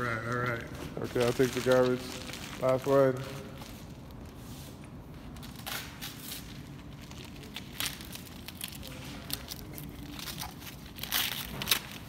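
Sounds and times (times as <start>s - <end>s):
child tearing wrapping paper: 1.0s - 3.0s, 5.4s - 12.0s.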